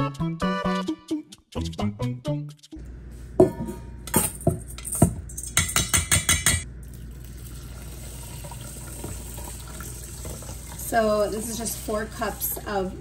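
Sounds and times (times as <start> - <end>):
metal strainer knocking on bowl: 5.6 - 6.6.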